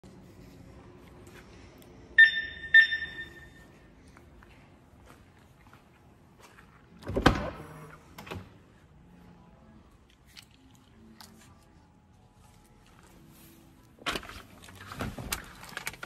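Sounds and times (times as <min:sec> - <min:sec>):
faint clicks and handling noises: 0:09.9 - 0:13.2.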